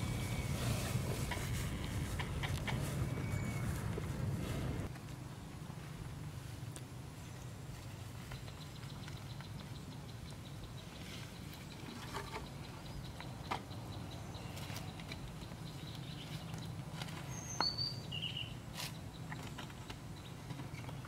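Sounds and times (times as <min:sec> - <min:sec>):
bird chirping: 0:00.0 - 0:04.0, 0:08.2 - 0:21.0
low steady hum: 0:00.0 - 0:21.0.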